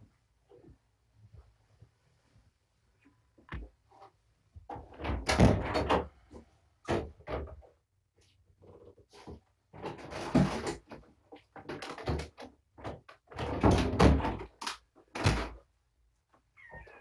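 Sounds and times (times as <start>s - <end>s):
objects knocking and clattering: 8.6s - 15.7s.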